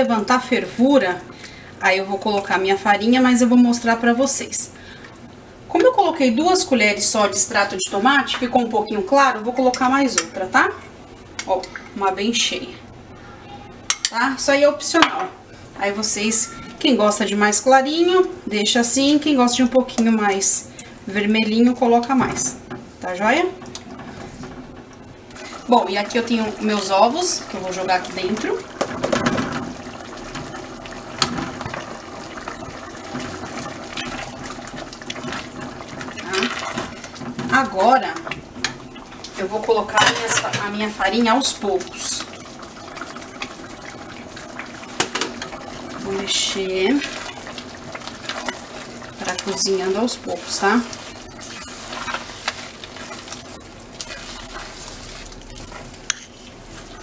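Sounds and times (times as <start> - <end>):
light sizzle: 0.0 - 57.0
liquid bubbling in a pan: 21.6 - 57.0
spoon scraping thick dough in pan: 48.2 - 57.0.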